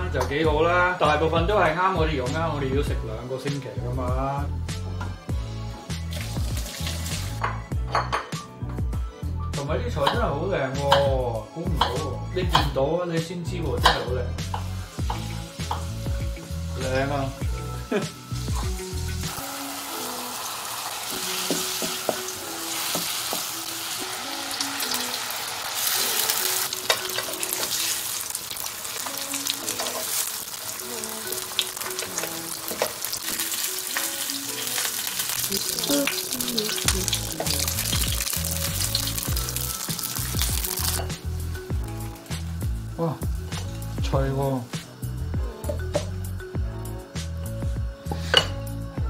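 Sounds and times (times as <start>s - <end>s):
fish sizzling in hot oil: 5.4s - 7.6s, 13.9s - 48.6s.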